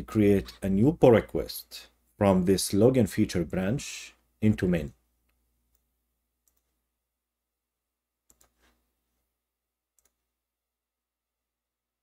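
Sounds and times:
computer mouse clicks: 5.3s - 6.7s, 8.3s - 8.8s, 10.0s - 10.2s.

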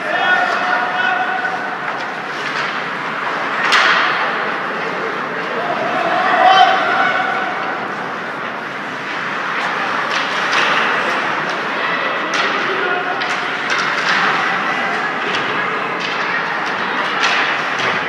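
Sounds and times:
distant shouting voices: 0.0s - 1.9s, 4.0s - 8.4s
sticks and puck knocking: 3.6s - 4.3s, 9.5s - 18.0s.

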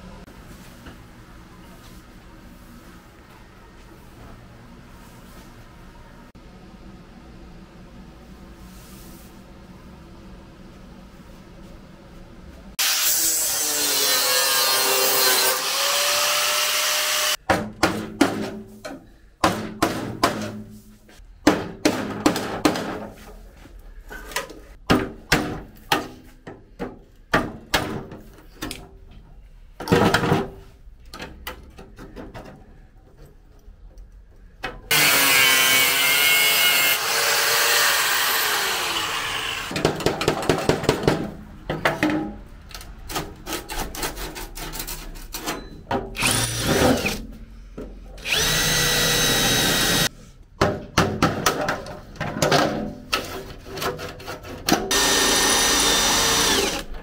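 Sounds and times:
power drill running: 34.9s - 39.7s, 46.2s - 47.2s, 48.2s - 50.1s, 54.9s - 56.9s.

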